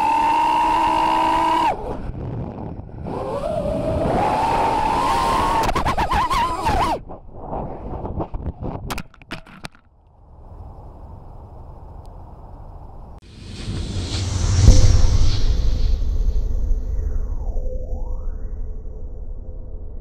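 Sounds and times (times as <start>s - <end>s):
quadcopter motors whining: 0.0s - 2.0s.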